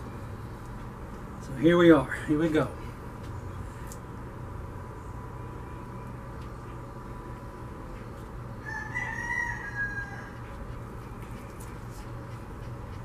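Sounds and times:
steady background hum: 0:00.0 - 0:13.0
rooster crowing: 0:08.6 - 0:10.6.

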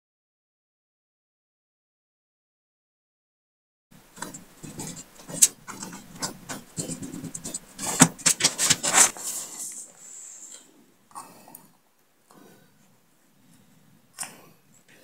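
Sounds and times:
watch being handled: 0:04.2 - 0:09.9.

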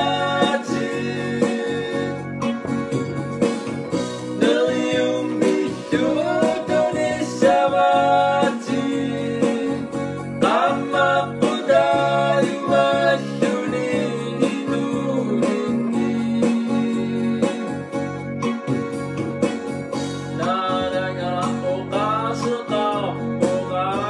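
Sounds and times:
person singing: 0:00.0 - 0:02.6, 0:04.4 - 0:17.8
guitar playing: 0:00.0 - 0:07.4.

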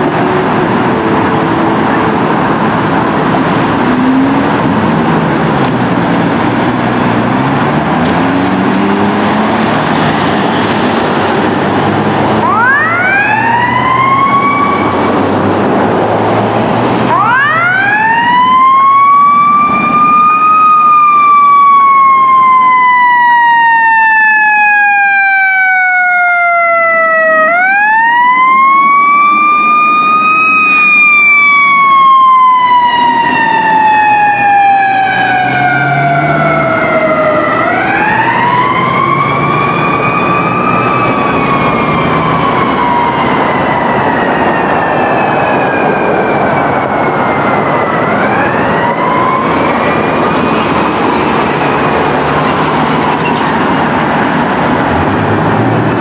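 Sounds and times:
mechanical siren wailing: 0:12.4 - 0:15.4, 0:17.1 - 0:55.1.

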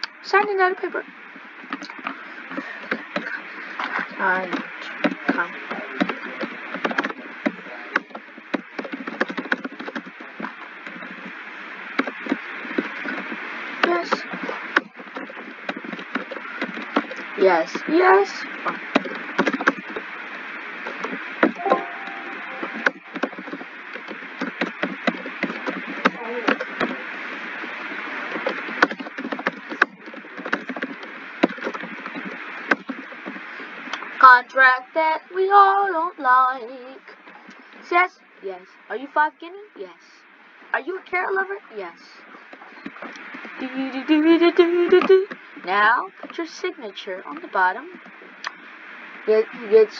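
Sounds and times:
steady background hiss: 0:00.0 - 0:49.9
keyboard typing: 0:04.5 - 0:11.2, 0:20.9 - 0:27.0.

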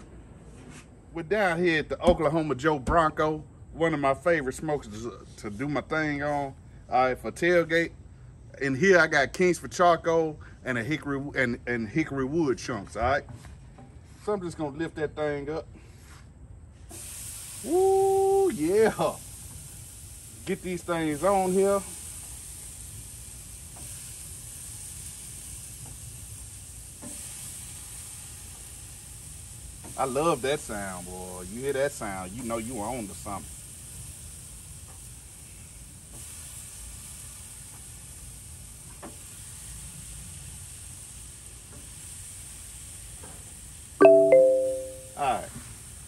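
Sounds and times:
chicken sizzling on a grill: 0:15.8 - 0:46.0
short loud pitched sound: 0:44.0 - 0:45.3.

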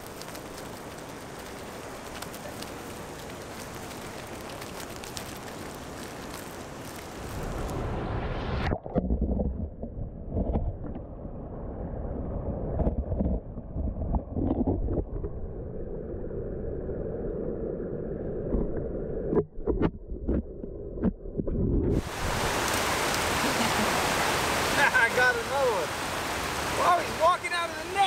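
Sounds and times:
underwater rumble of moving water: 0:00.0 - 0:22.8.

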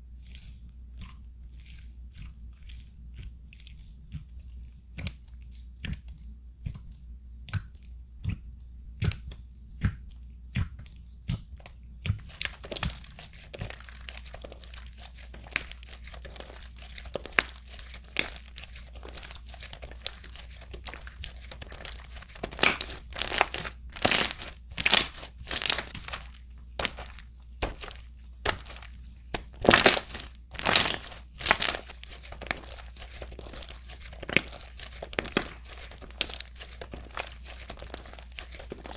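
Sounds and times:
slime crackling and popping: 0:09.0 - 0:38.9.

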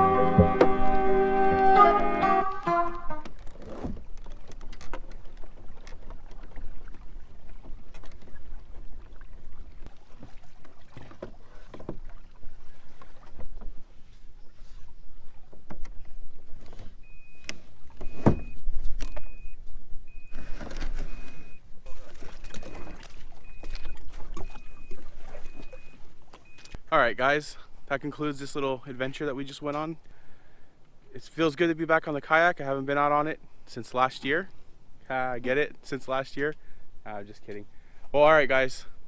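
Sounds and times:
kayak knocks and thump: 0:00.0 - 0:09.1, 0:09.8 - 0:14.0, 0:15.3 - 0:19.8
water and wind noise: 0:00.0 - 0:39.0.

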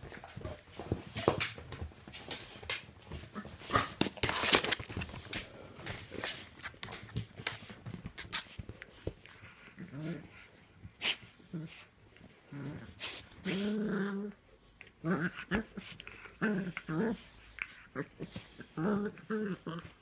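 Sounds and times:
dogs scuffling and huffing: 0:00.0 - 0:14.0.

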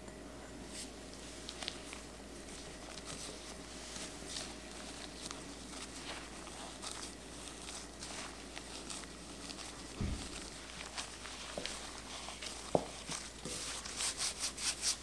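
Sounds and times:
hands rubbing butter into flour: 0:00.8 - 0:15.0.

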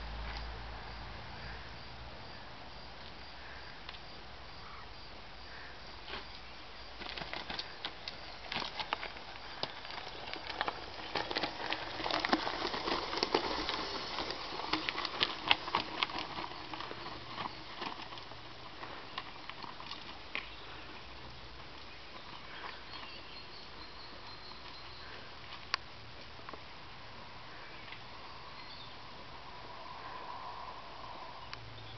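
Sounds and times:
tyres crunching over stones: 0:05.5 - 0:26.7.

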